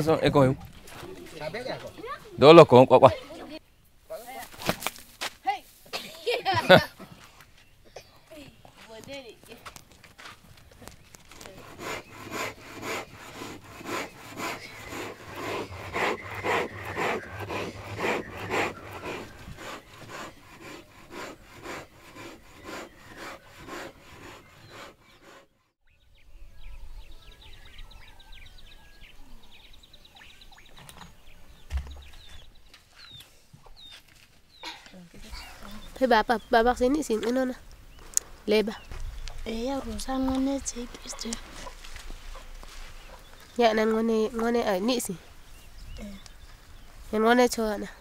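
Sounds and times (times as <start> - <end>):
rubbing strokes on wood: 11.3 - 25.5.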